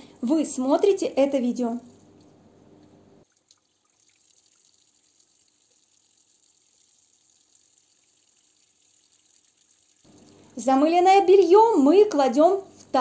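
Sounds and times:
faint tap water running: 3.2 - 12.2
tiny splashing ticks: 3.3 - 6.8.

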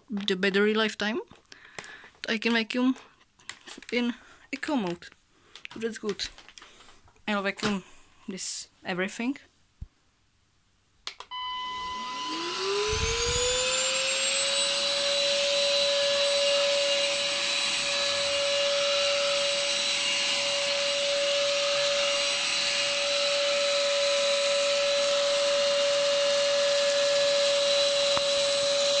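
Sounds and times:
vacuum motor whine: 11.3 - 29.0.

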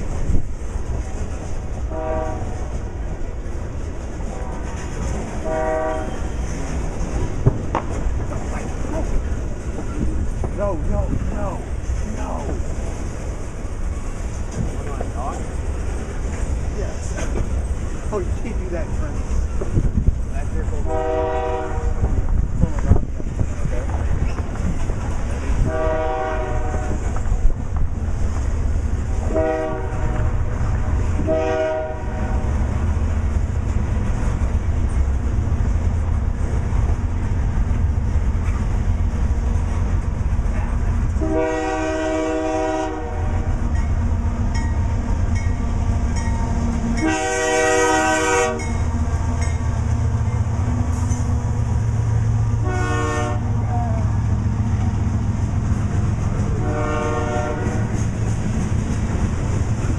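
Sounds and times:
locomotive engine drone: 0.0 - 59.9
train wheel clatter: 0.0 - 59.9
train air horn blasts: 1.8 - 2.8, 5.4 - 6.4, 20.8 - 22.1, 25.6 - 27.1, 29.2 - 30.5, 31.2 - 32.5, 41.2 - 43.6, 47.0 - 48.8, 52.6 - 53.6, 56.5 - 58.0.

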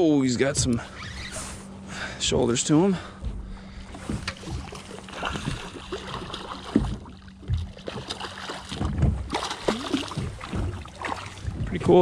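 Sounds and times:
fish splashing at water surface: 4.3 - 11.6.

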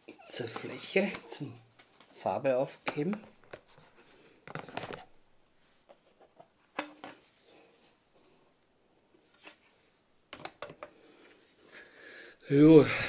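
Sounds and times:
plastic parts rubbing and clicking: 2.8 - 5.1.

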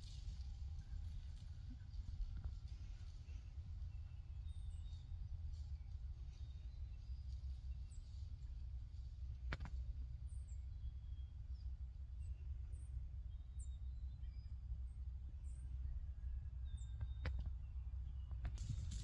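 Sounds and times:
wind rumbling on microphone: 0.0 - 10.9, 15.3 - 19.0
faint bird chirps: 10.2 - 19.0.

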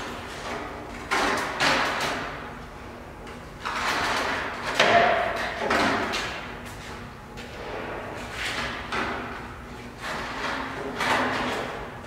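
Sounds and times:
stepladder scraping on concrete: 3.6 - 12.0.

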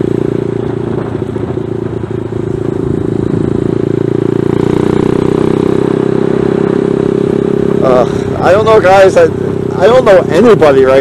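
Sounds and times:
wind noise on microphone: 0.0 - 4.0
motorcycle engine running: 0.0 - 11.0.

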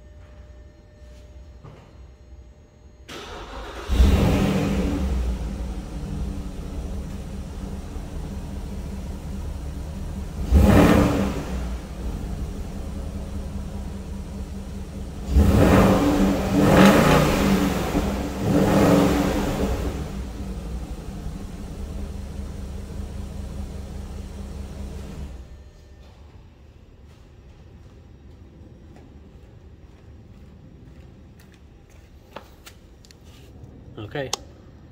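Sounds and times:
car engine idling and revving: 3.1 - 25.6.

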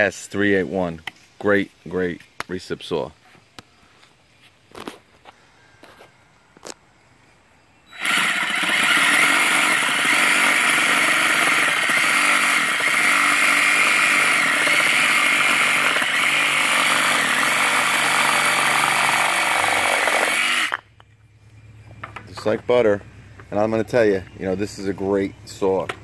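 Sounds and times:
reciprocating saw cutting wood: 7.9 - 20.8.

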